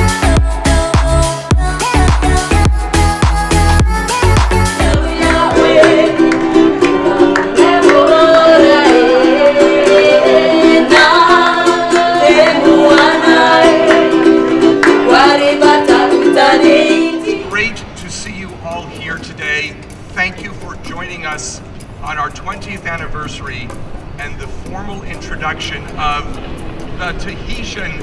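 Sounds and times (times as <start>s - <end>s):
women singing: 0.0s - 17.4s
ukulele strumming: 4.6s - 19.3s.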